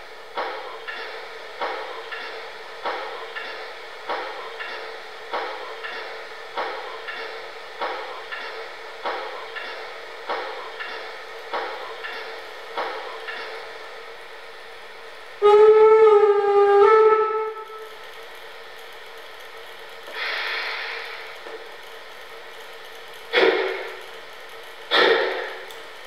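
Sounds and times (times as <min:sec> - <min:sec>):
rhythmic steam puffs: 0:00.0 - 0:26.0
two-part steam whistle: 0:15.4 - 0:17.9
steam hiss: 0:20.1 - 0:22.4, 0:23.2 - 0:25.9.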